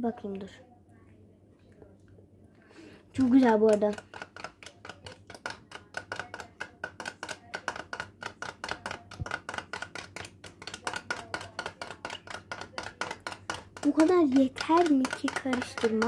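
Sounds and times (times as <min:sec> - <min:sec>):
metal spoon beating in a bowl: 0:03.2 - 0:16.0.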